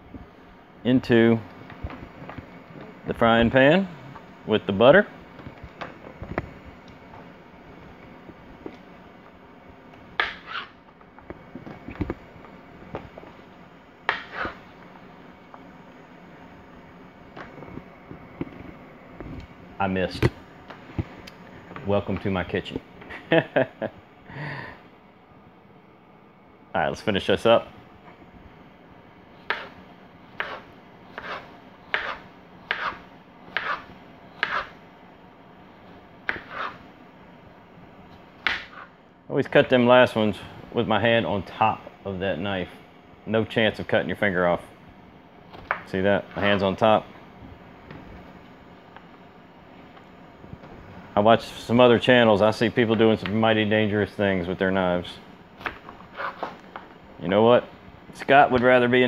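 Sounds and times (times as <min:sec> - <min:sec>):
knife slicing squash: 0:30.4 - 0:34.7.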